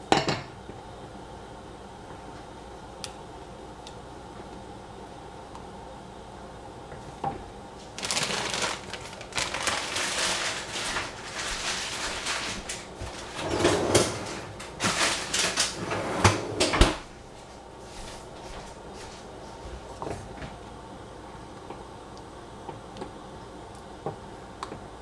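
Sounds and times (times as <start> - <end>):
crackly rustling and scraping: 7.8 - 20.6.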